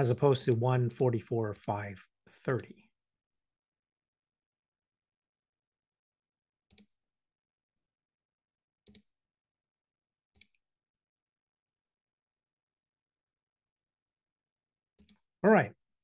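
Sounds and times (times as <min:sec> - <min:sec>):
computer mouse clicks: 0:06.7 - 0:07.0, 0:08.8 - 0:09.1, 0:10.3 - 0:10.6, 0:15.0 - 0:15.3.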